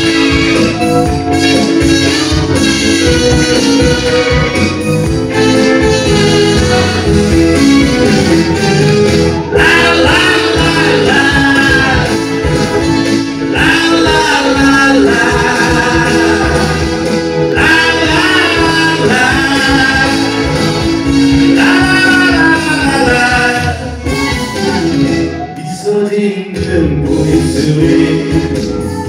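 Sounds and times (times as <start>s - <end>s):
pop backing track: 0.0s - 29.0s
man singing into microphone: 9.5s - 12.6s, 13.4s - 24.0s, 24.6s - 29.0s.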